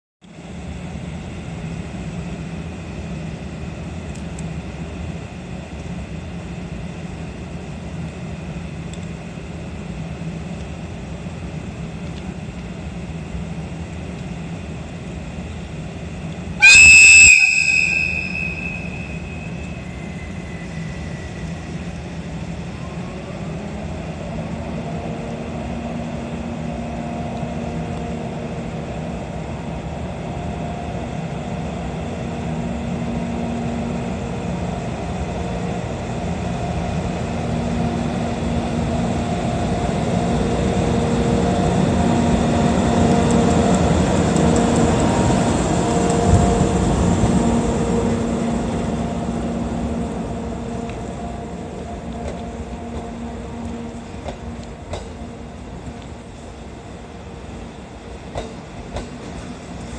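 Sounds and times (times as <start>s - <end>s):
faint rising locomotive tones: 0.3s - 59.9s
locomotive whistle blast: 16.6s - 20.4s.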